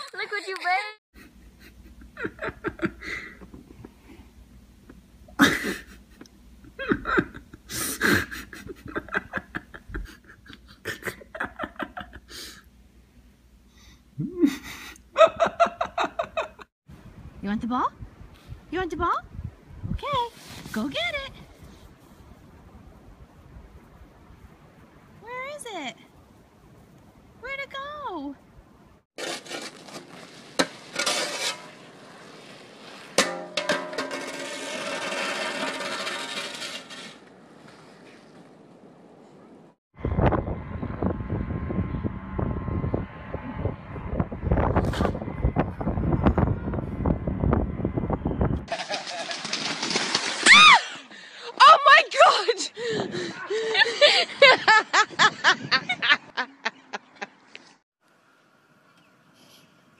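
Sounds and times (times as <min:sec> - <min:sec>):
person laughing hard: 0:01.2 - 0:03.8, 0:05.4 - 0:12.4, 0:14.2 - 0:16.7, 0:52.8 - 0:57.3
metal shovel scraping snow: 0:29.2 - 0:38.4, 0:48.7 - 0:50.5
shovel clattering on pavement: 0:33.1 - 0:37.2.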